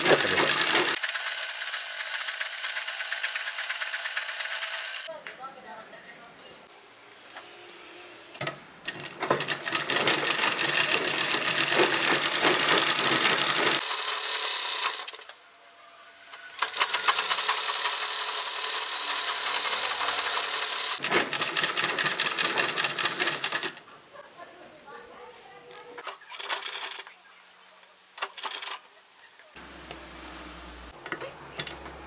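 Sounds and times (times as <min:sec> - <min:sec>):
sewing machine stitching fabric: 0:00.0 - 0:05.1, 0:08.9 - 0:15.3, 0:16.6 - 0:23.8.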